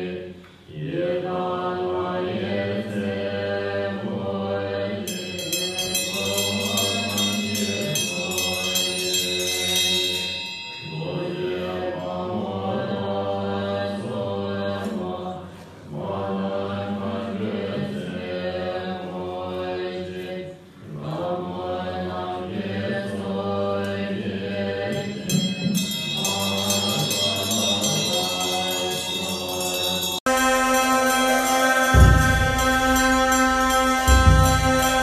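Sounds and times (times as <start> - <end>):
fast high ringing: 5.1 - 11.8, 25.0 - 35.0
group of voices chanting: 26.3 - 35.0.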